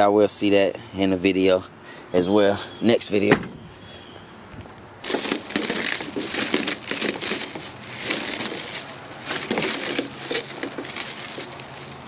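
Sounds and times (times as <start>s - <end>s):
plastic wrapping crinkling: 5.0s - 12.0s.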